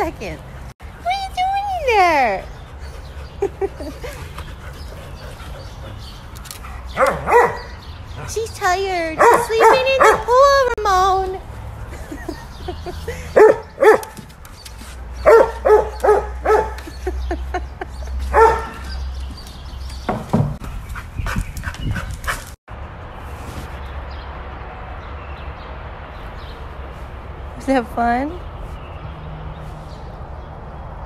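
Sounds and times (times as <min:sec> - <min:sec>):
dog barking: 0:06.9 - 0:07.8, 0:09.2 - 0:10.3, 0:13.4 - 0:14.1, 0:15.2 - 0:16.8, 0:18.3 - 0:18.8.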